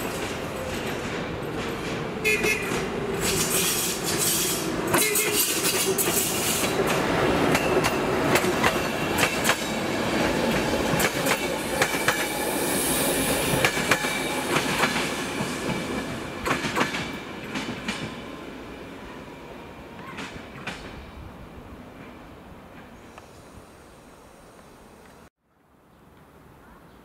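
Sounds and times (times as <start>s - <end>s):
wheels clacking over rail joints: 0.0s - 12.4s, 13.3s - 18.2s
train rumbling past: 0.0s - 25.3s.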